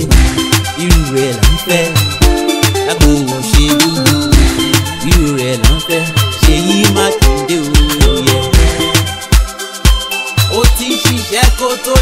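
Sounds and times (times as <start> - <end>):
heavy steady drum beat: 0.0 - 9.5
bending melodic line: 0.1 - 9.3.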